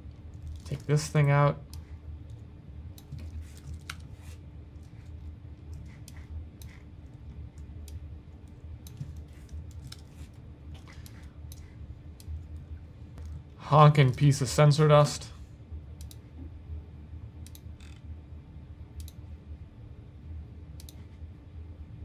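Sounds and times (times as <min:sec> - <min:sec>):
low steady hum: 0:00.0 - 0:22.0
mouse and keyboard clicks: 0:05.7 - 0:06.9, 0:17.4 - 0:18.0.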